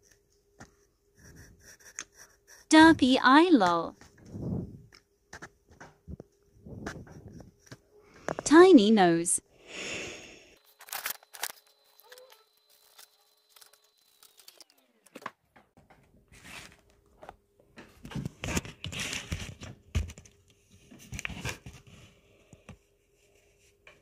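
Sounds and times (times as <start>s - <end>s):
pencil scratching on paper: 0.0s - 3.1s
paper page rustling: 10.6s - 14.8s.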